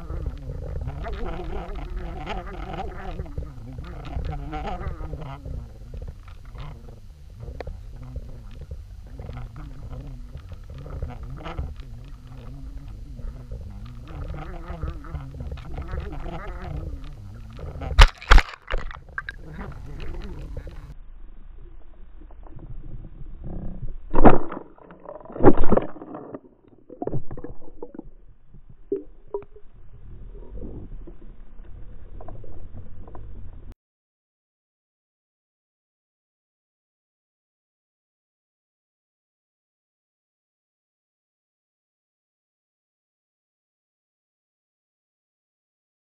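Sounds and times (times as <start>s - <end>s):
underwater boat motor drone: 0.0s - 24.1s.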